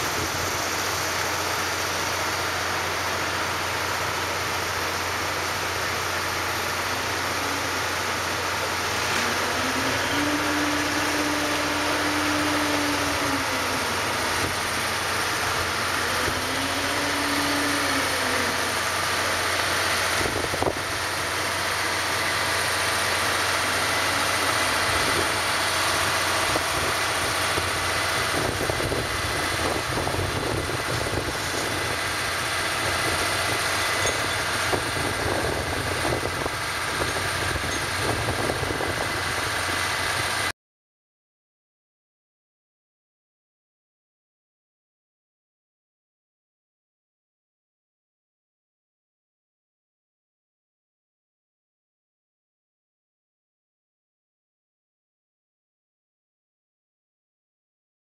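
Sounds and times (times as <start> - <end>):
ferry engine idling: 0.0 - 40.5.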